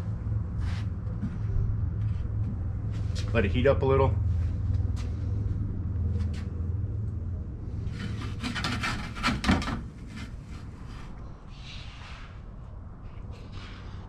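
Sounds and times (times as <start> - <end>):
steady low rumble: 0.0 - 8.5, 9.8 - 14.0
scraping and rasping on oven: 7.8 - 11.2.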